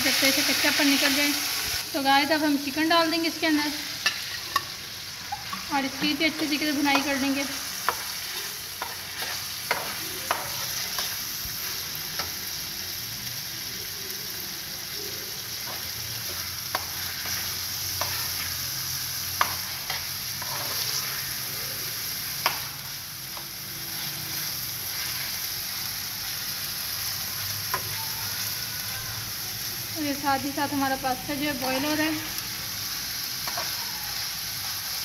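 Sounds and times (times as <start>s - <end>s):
chicken sizzling in oil: 0.0s - 35.0s
spatula scraping and tapping pan: 4.0s - 11.2s, 15.6s - 18.6s, 19.4s - 21.1s.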